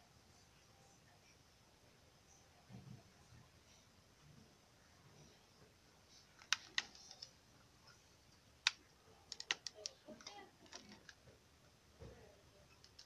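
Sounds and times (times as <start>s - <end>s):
soldering clicks and crackles: 8.3s - 11.2s, 12.7s - 13.0s.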